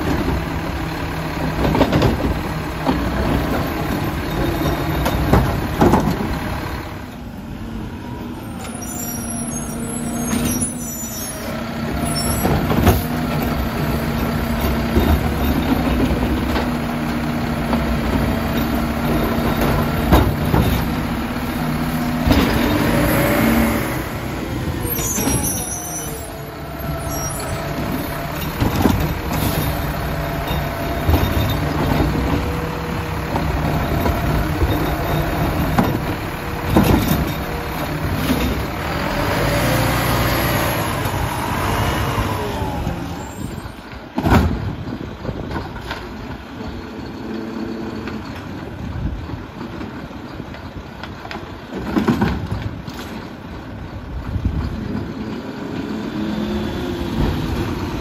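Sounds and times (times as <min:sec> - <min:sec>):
garbage truck diesel engine revving: 0:00.0 - 0:45.4, 0:53.6 - 0:58.0
hydraulic arm and cart clunks: 0:01.3 - 0:07.2, 0:08.6 - 0:58.0
air brakes hissing: 0:08.6 - 0:12.5.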